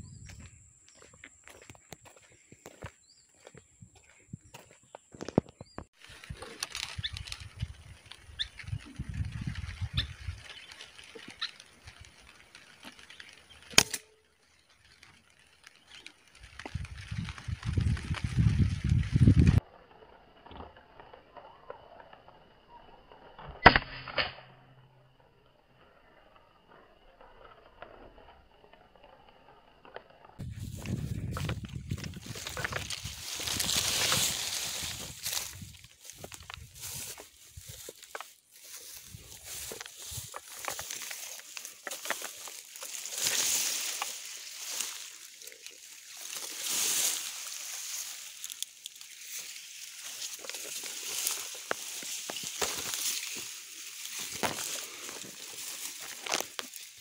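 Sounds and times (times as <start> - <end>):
grass rustling against camera: 0.0 - 21.1, 26.0 - 57.0
stems crackling: 0.3 - 23.5, 25.0 - 57.0
grass swishes: 30.4 - 57.0.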